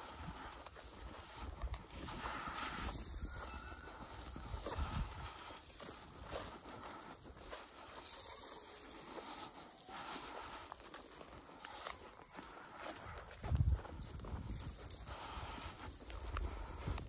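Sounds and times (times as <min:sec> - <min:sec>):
footsteps crunching through dry grass: 0:00.0 - 0:17.0
wind rumble on microphone: 0:01.3 - 0:05.2, 0:13.4 - 0:17.0.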